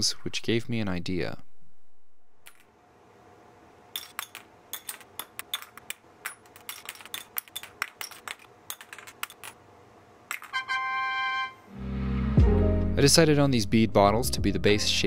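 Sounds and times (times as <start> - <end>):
plastic rings clicking as they land: 4.0 - 9.6.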